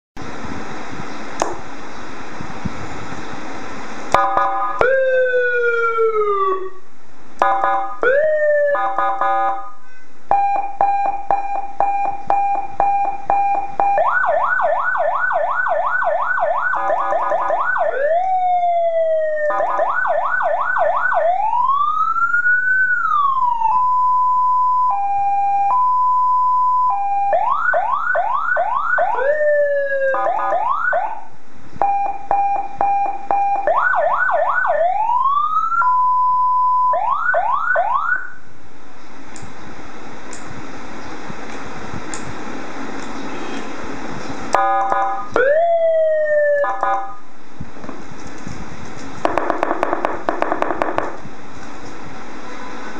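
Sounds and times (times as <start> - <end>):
electronic police siren: 4.1 - 6.8, 7.4 - 38.4, 44.5 - 47.3.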